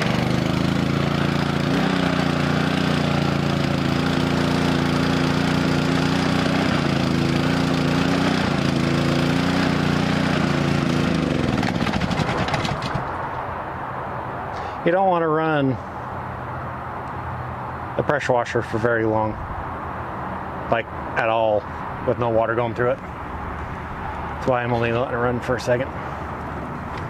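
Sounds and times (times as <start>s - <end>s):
pressure washer engine running: 0.0s - 13.1s
engine shutting off: 0.0s - 13.2s.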